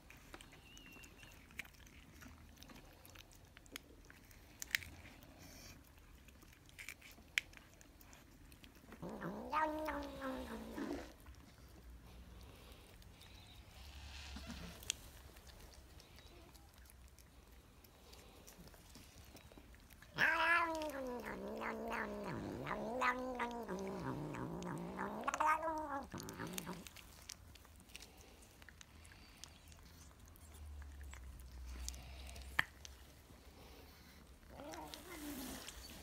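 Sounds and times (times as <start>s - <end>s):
cat meowing: 9.0s - 11.0s, 20.1s - 26.8s.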